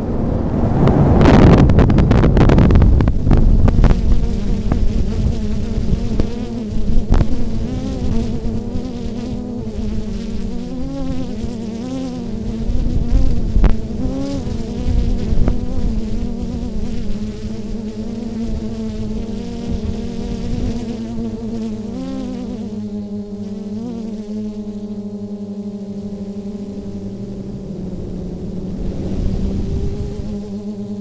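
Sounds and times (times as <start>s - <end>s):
drone propellers buzzing: 0.0s - 9.9s, 24.4s - 31.0s
wind rumble on microphone: 0.0s - 10.2s, 12.2s - 21.5s, 27.0s - 31.0s.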